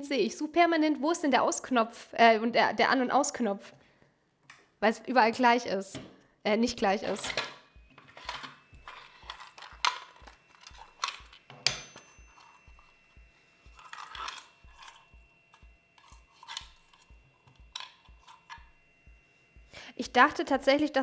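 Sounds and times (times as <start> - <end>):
sharp metal clank: 11.5 - 12.4.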